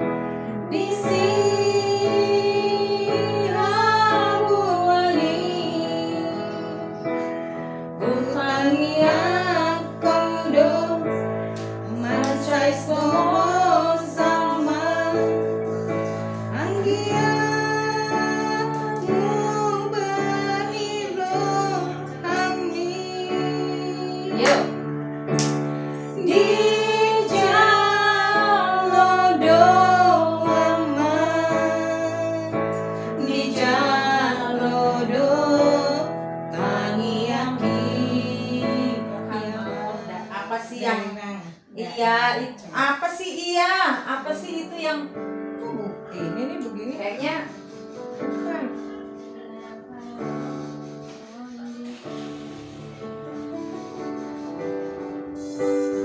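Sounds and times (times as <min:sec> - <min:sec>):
digital piano chords: 0:00.0 - 0:40.8, 0:44.3 - 0:56.0
woman singing: 0:00.5 - 0:07.0, 0:08.0 - 0:11.2, 0:11.8 - 0:15.6, 0:16.5 - 0:24.8, 0:26.2 - 0:41.1.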